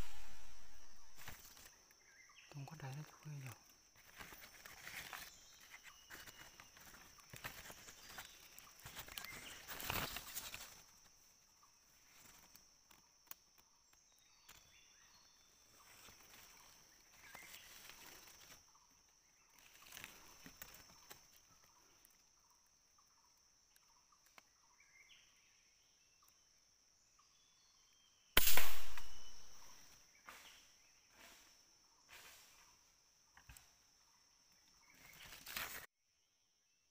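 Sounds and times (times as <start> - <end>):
thin high hiss: 0.0 - 1.4, 28.4 - 29.7
faint soft rustles: 3.0 - 12.6.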